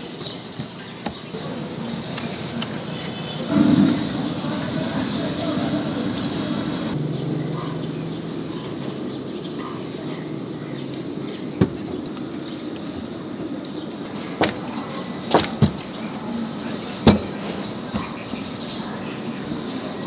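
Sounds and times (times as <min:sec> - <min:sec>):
street stall background noise: 0:00.0 - 0:20.0
sharp knocks and slaps: 0:14.4 - 0:14.6, 0:15.3 - 0:15.9.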